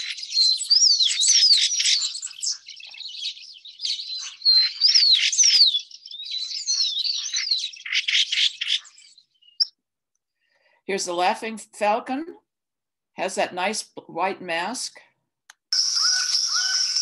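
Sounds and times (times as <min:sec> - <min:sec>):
thrush calling: 0:00.0 - 0:09.2, 0:15.8 - 0:17.0.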